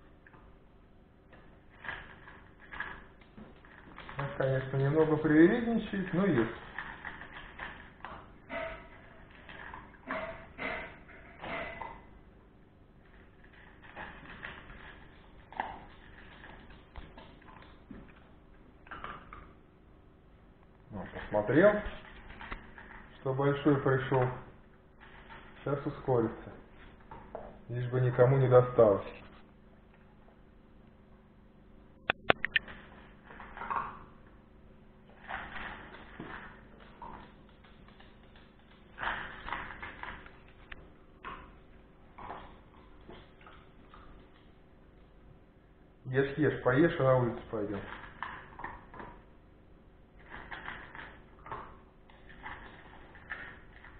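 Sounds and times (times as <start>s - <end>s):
puppy crunching kibble: 1.3s - 12.1s, 13.0s - 19.5s, 20.9s - 27.4s, 32.1s - 34.4s, 35.0s - 45.2s, 46.7s - 49.4s, 50.1s - 53.9s.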